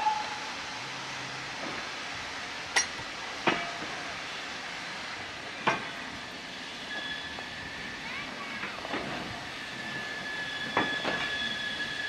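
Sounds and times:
steam hiss: 0.0 - 12.0
metallic wheel clanks: 2.8 - 3.8.

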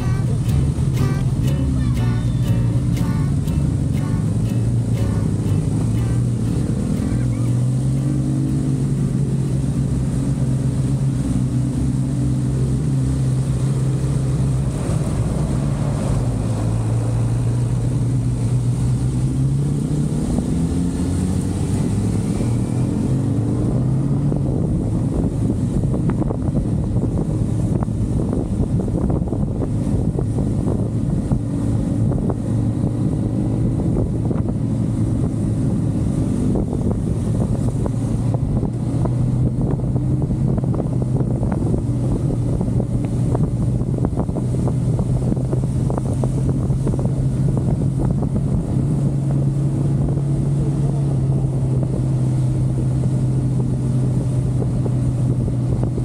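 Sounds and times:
motorcycle engine running: 0.0 - 11.2
wind noise on microphone: 0.0 - 56.0.

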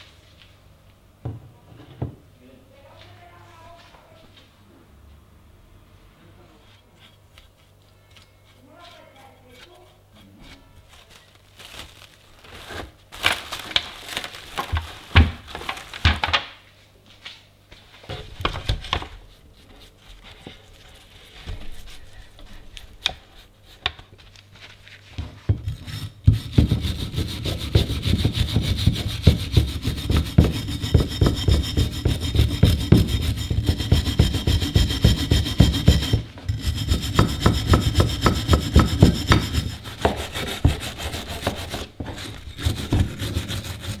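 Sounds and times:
rustling and handling noises: 6.5 - 25.9
wire brush scrubbing metal: 25.8 - 44.0.

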